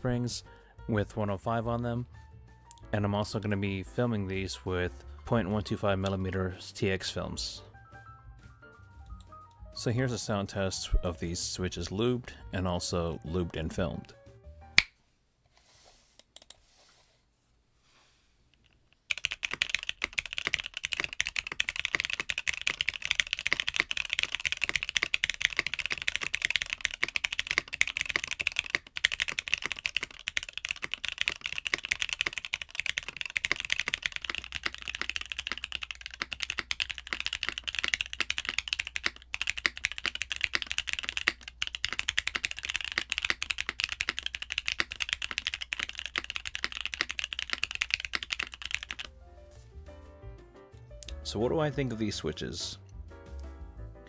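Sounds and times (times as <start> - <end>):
fast mechanical keyboard typing: 19.1 - 49.1.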